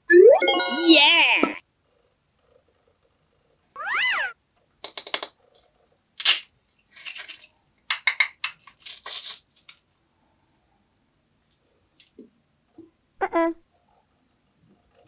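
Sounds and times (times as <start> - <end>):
meow-like call: 3.8 - 4.4.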